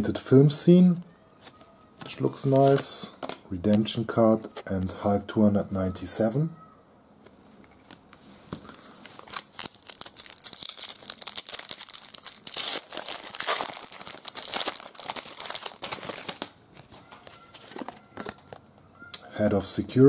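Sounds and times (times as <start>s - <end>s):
foil wrapper crinkling and tearing: 8.6s - 18.6s.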